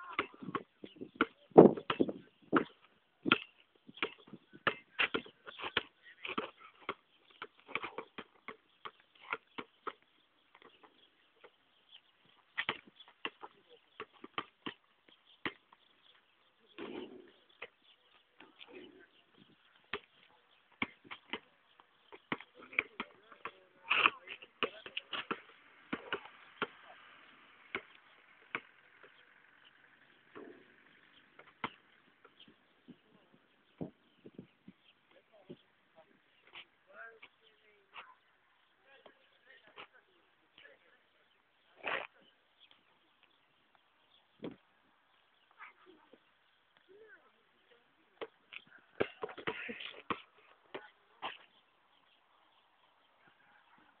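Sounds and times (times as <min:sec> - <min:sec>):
basketball bouncing on asphalt: 0:00.0 - 0:18.6, 0:19.4 - 0:34.5, 0:48.2 - 0:51.5.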